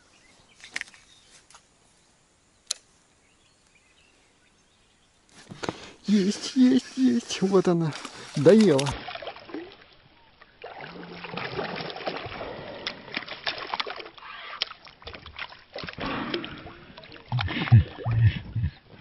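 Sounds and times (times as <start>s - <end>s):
sharp clicks: 2.6s - 2.9s
fish splashing water: 7.9s - 9.9s, 10.5s - 18.4s.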